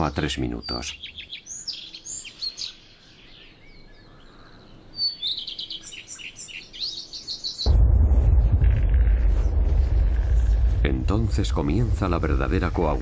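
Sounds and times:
small birds chirping: 0:00.0 - 0:07.8
loud deep rumble: 0:07.7 - 0:13.0.

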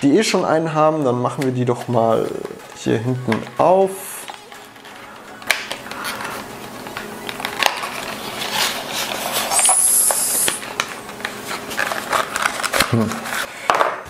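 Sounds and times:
cardboard rustling and scraping: 0:01.0 - 0:13.6
cardboard parts sliding rasp: 0:07.7 - 0:10.6, 0:11.3 - 0:13.5.

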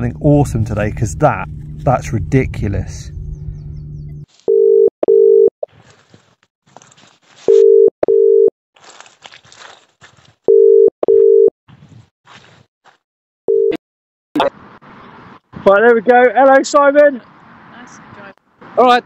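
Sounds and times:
telephone ringback tone: 0:04.5 - 0:05.5, 0:07.5 - 0:08.5, 0:10.5 - 0:11.5, 0:13.5 - 0:13.8.

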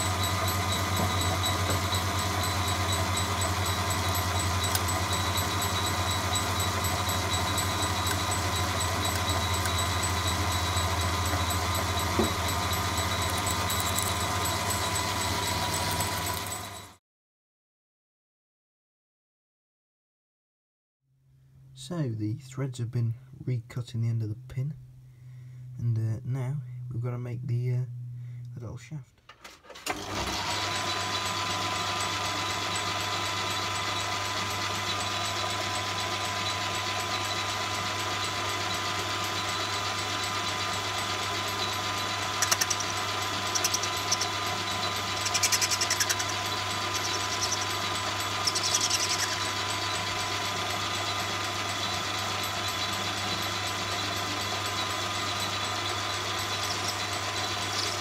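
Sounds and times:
high-pitched tool scraping metal: 0:00.0 - 0:16.9, 0:41.5 - 0:50.3, 0:51.8 - 0:58.0
lathe motor humming and whining: 0:00.0 - 0:17.0, 0:29.8 - 0:58.0.

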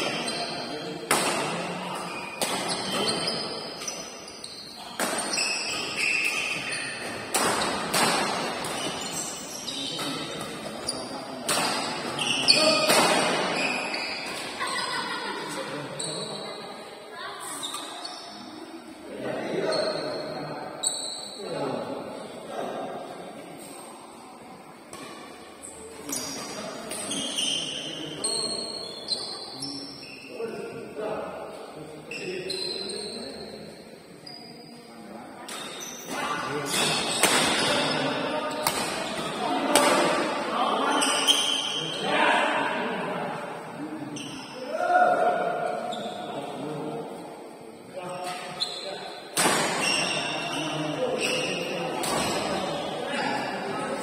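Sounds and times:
voices in hall: 0:00.0 - 0:54.0
sneakers squeaking on court: 0:02.0 - 0:11.2, 0:11.9 - 0:14.5, 0:26.0 - 0:30.3, 0:48.3 - 0:53.0
rackets striking shuttlecock: 0:38.6 - 0:40.2.

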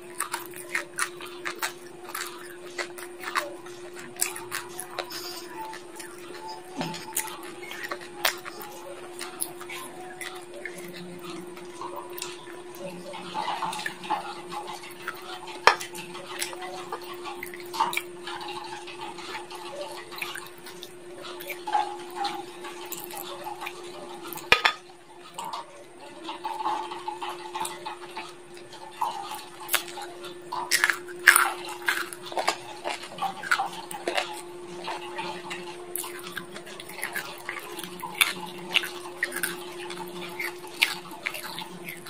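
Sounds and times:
chewing chicken bones: 0:00.0 - 0:42.0
steady hum: 0:00.0 - 0:42.0.

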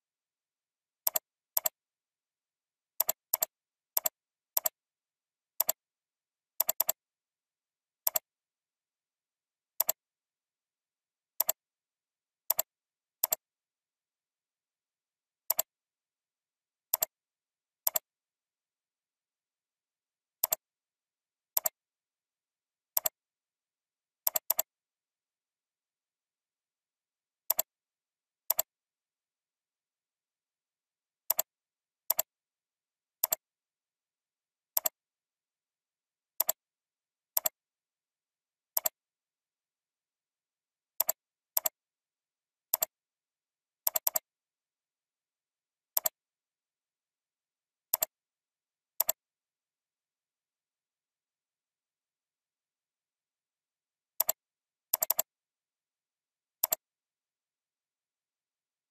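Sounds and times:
computer mouse clicks: 0:01.0 - 0:01.8, 0:03.0 - 0:04.8, 0:05.6 - 0:05.8, 0:06.6 - 0:07.0, 0:08.0 - 0:08.3, 0:09.8 - 0:10.0, 0:11.4 - 0:11.6, 0:12.5 - 0:13.4, 0:15.5 - 0:15.7, 0:16.9 - 0:17.2, 0:17.8 - 0:18.1, 0:20.4 - 0:20.6, 0:21.5 - 0:21.8, 0:23.0 - 0:23.2, 0:24.3 - 0:24.7, 0:27.5 - 0:27.7, 0:28.5 - 0:28.7, 0:31.3 - 0:31.5, 0:32.1 - 0:32.3, 0:33.2 - 0:33.4, 0:34.7 - 0:35.0, 0:36.4 - 0:36.6, 0:37.3 - 0:37.6, 0:38.7 - 0:39.0, 0:41.0 - 0:41.8, 0:42.7 - 0:43.0, 0:43.8 - 0:44.3, 0:45.9 - 0:46.2, 0:47.9 - 0:48.2, 0:49.0 - 0:49.2, 0:54.2 - 0:55.3, 0:56.6 - 0:56.9.

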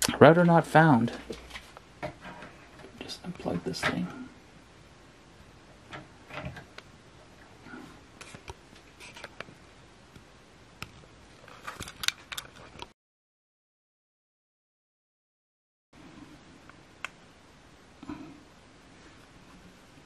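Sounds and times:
cables and plugs clicking: 0:11.7 - 0:12.9.

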